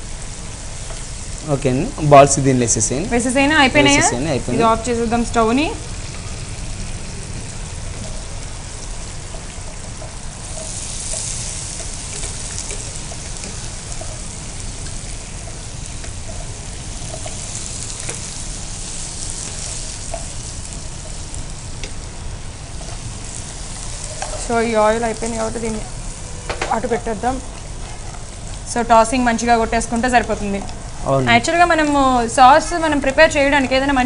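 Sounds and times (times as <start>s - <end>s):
food sizzling in pans: 0.0s - 34.0s
utensils clicking on pan: 9.2s - 22.1s, 22.7s - 25.8s.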